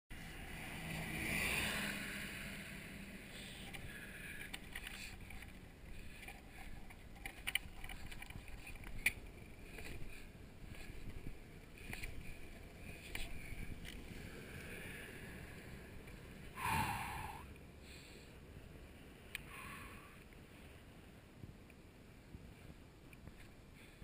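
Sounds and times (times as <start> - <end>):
longboard wheels rolling on asphalt: 0.1 - 24.0
bus passing by: 0.2 - 4.2.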